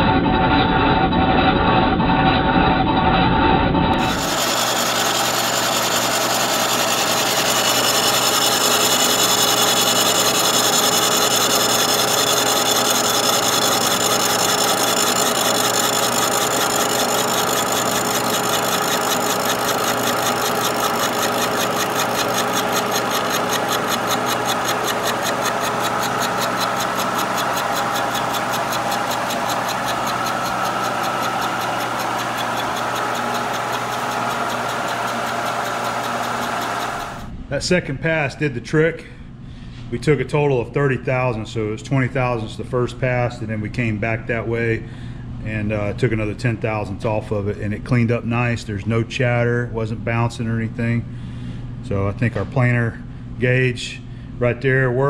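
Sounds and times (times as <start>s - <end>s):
fast even ticking of inserts: 4.0s - 37.3s
milling machine cutting: 4.0s - 37.3s.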